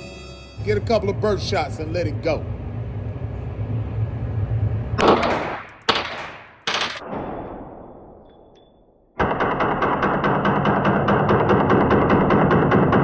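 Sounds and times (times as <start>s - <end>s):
music: 0.0s - 2.1s
gunshots with echo: 5.0s - 8.2s.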